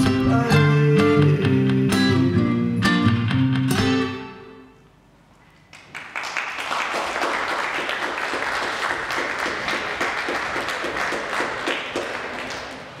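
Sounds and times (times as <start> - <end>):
audience applauding: 5.7 - 13.0.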